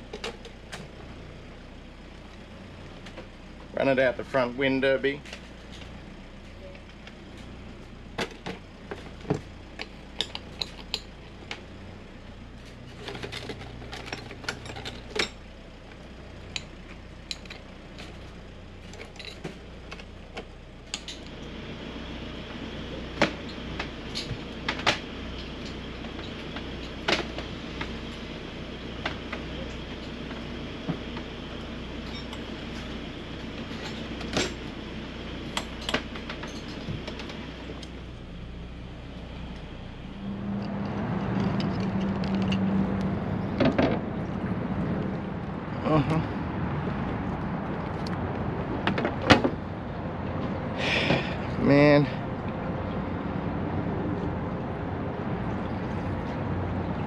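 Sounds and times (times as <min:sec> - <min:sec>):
tools and plastic cases clattering: 0:12.9 - 0:15.4
steady hum: 0:16.5 - 0:57.0.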